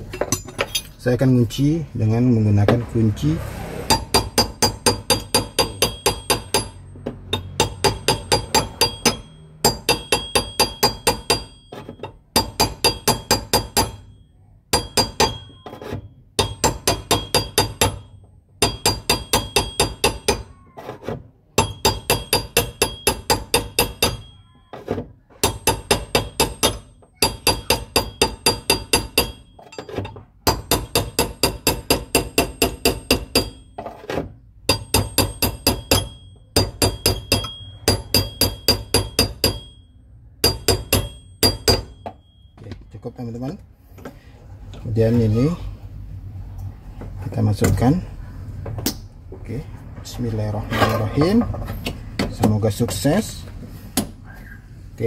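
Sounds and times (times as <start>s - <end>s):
hammer striking metal punch: 3.8s - 20.6s, 21.5s - 24.8s, 25.4s - 42.8s.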